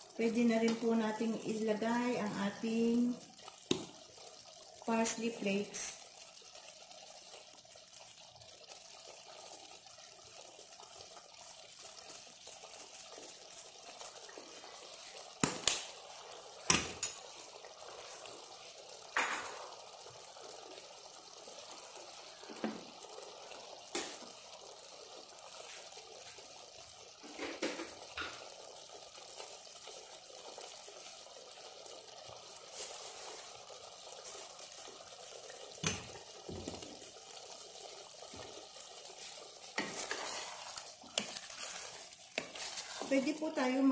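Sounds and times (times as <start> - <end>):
stew simmering hiss: 0.0 - 43.9
sharp pops and knocks: 3.6 - 4.0, 15.4 - 15.9, 16.6 - 17.2, 35.8 - 36.8.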